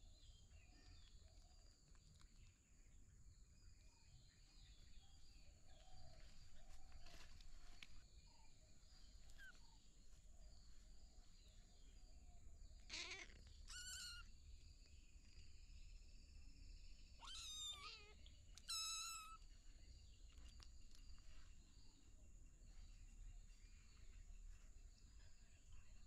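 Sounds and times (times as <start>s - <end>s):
kittens meowing: 12.9s - 14.3s, 17.2s - 19.4s.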